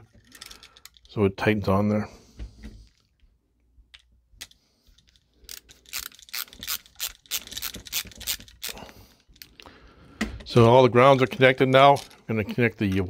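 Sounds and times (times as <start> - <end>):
screwdriver clicking: 5.5 - 8.8.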